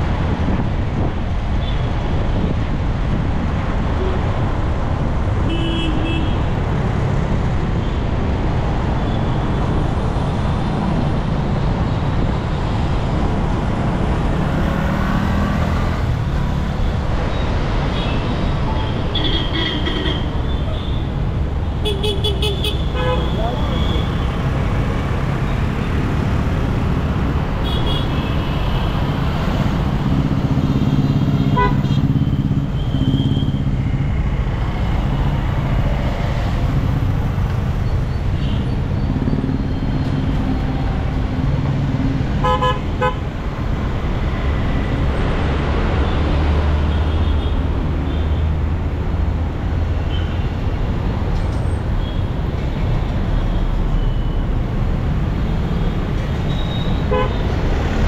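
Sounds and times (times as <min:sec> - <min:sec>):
traffic engines and tyres humming: 0:00.0 - 0:58.0
car horns tooting: 0:31.5 - 0:32.1, 0:42.4 - 0:43.2, 0:56.5 - 0:57.5.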